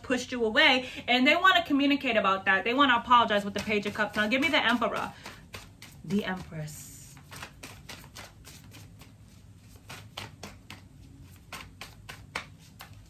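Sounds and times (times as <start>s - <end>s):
cards being shuffled by hand: 3.3s - 13.0s.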